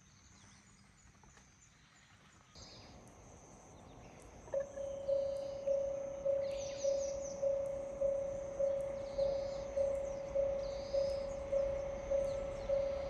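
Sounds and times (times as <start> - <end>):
birds chirping faintly: 0.0 - 13.0
steady electronic warning tone: 4.6 - 13.0.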